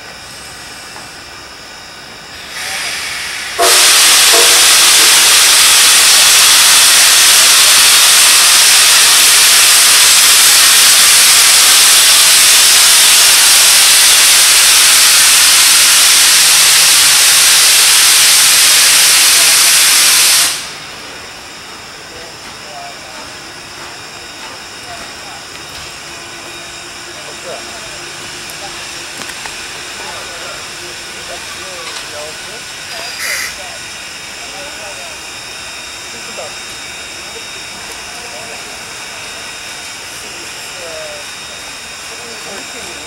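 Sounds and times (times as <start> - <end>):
steam hissing from safety valve: 2.1 - 43.0.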